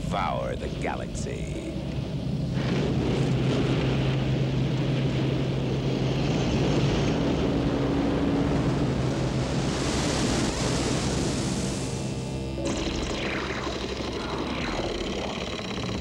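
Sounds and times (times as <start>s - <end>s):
deep rumbling drone: 0.0s - 16.0s
low hum: 0.0s - 16.0s
higher tone: 11.8s - 16.0s.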